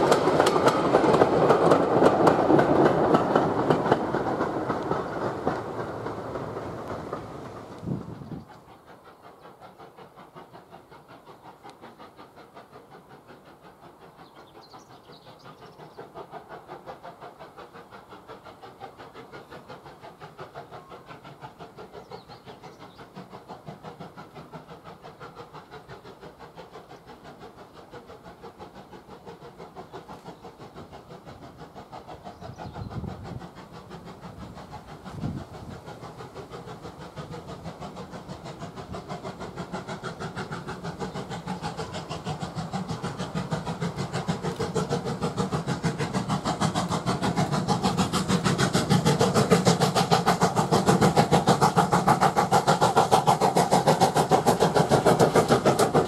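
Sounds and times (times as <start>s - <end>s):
steam locomotive chuffing: 0.0s - 56.0s.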